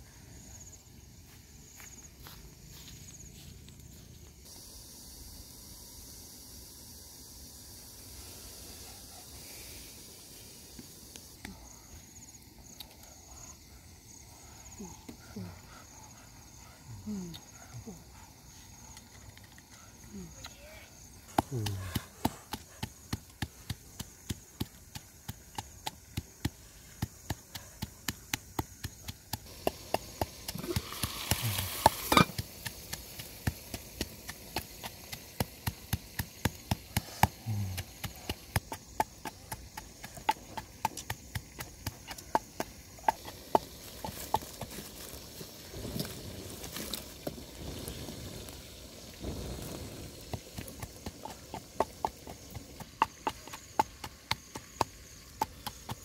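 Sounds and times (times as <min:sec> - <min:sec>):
pestle pounding in mortar: 0:21.3 - 0:44.7, 0:50.2 - 0:56.0.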